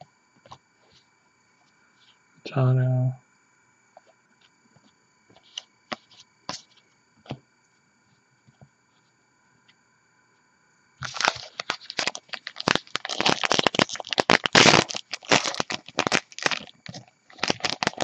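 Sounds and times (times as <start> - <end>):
foil wrapper tearing and crinkling: 11.0 - 18.0.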